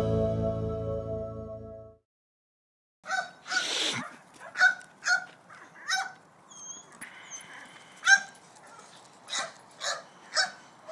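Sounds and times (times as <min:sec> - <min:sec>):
puppy yapping: 0:03.1 - 0:10.9.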